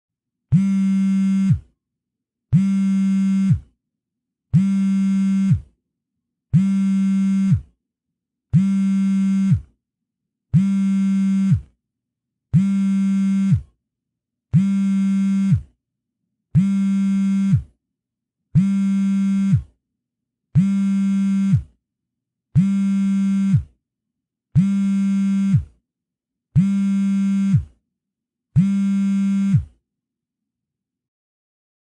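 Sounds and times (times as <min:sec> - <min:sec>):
phone vibrating buzz: 0:00.5 - 0:01.7, 0:02.5 - 0:03.7, 0:04.5 - 0:05.7, 0:06.6 - 0:07.7, 0:08.5 - 0:09.8, 0:10.6 - 0:11.8, 0:12.5 - 0:13.7, 0:14.5 - 0:15.8, 0:16.6 - 0:17.7, 0:18.6 - 0:19.7, 0:20.6 - 0:21.7, 0:22.6 - 0:23.7, 0:24.6 - 0:25.7, 0:26.6 - 0:27.8, 0:28.6 - 0:29.8.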